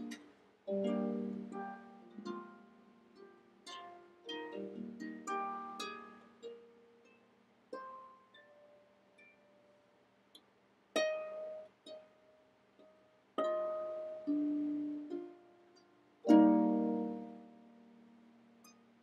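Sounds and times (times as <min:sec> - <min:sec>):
harp notes plucked: 0:16.2 - 0:18.0.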